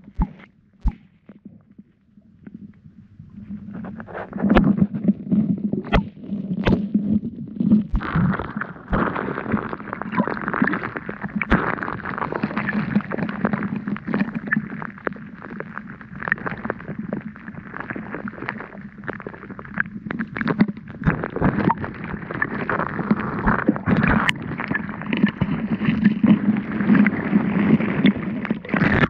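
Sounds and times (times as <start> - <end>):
muffled underwater river rumbling: 0.0 - 29.0.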